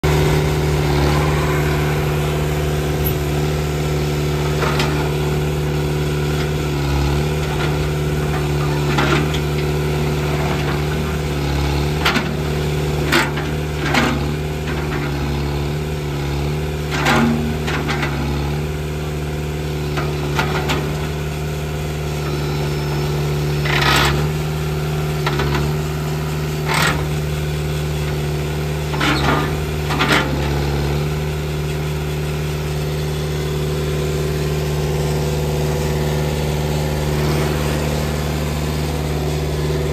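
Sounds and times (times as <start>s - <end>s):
sharp hydraulic loader noises: 0.0s - 9.4s, 21.8s - 39.9s
tractor diesel engine running: 0.0s - 39.9s.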